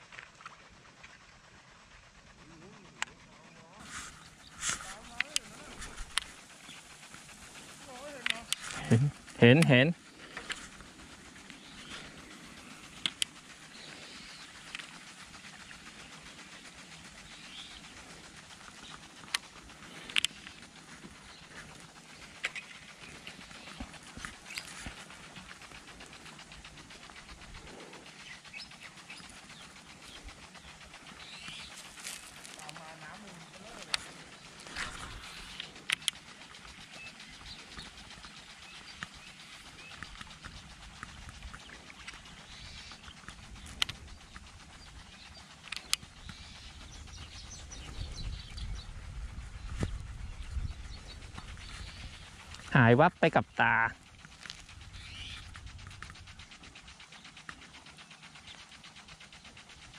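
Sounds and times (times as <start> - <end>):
faint rapid ticking: 0.0 - 59.9
distant birds calling: 2.7 - 59.9
sharp clicks: 7.5 - 15.1
low wind rumble: 40.1 - 52.8.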